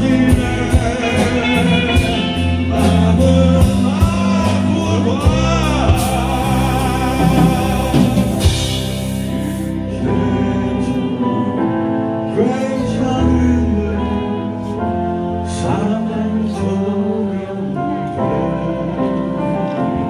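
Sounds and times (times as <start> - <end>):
drums: 0.0 - 15.8
electric guitars: 0.0 - 20.0
man singing: 0.0 - 20.0.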